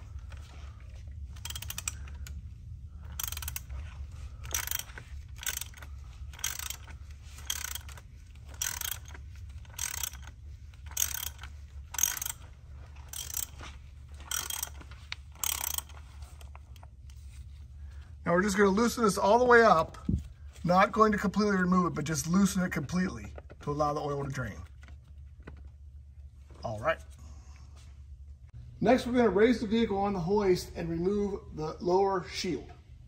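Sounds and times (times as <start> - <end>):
ratchet clicking: 1.3 - 16.8.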